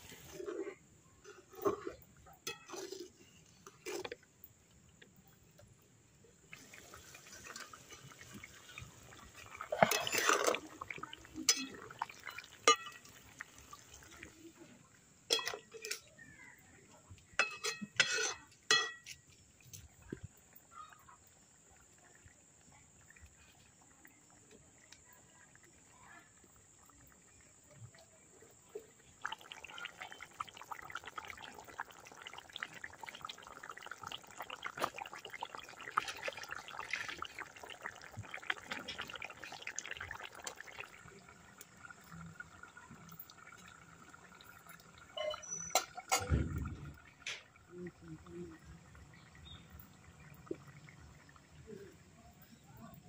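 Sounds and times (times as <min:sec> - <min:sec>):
curry bubbling and popping: 0:00.0 - 0:53.0
ladle clinking against pan: 0:17.4 - 0:19.1.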